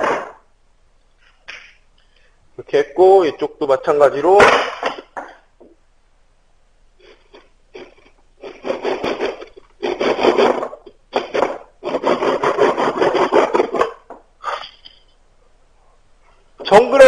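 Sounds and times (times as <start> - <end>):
blade scraping wooden stick: 7.0 - 15.0.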